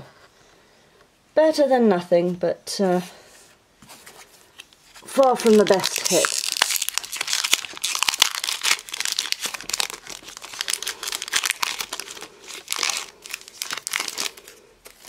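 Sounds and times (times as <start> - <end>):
foil wrapper crinkling and tearing: 4.6 - 15.0.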